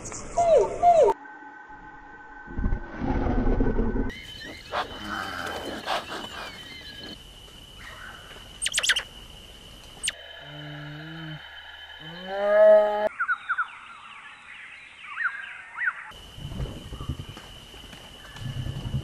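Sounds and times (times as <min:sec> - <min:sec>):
rising animal call: 0:04.1 - 0:07.2, 0:10.0 - 0:13.1
high chirping sweeps: 0:08.6 - 0:09.1
short bird-like chirps: 0:08.6 - 0:09.1
low moaning animal call: 0:10.2 - 0:13.1.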